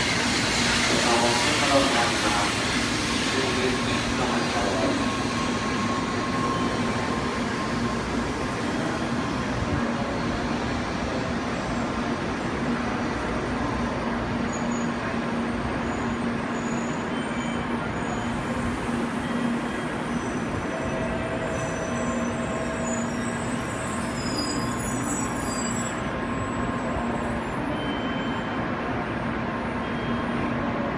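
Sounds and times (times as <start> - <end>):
train running noise: 0.0 - 30.9.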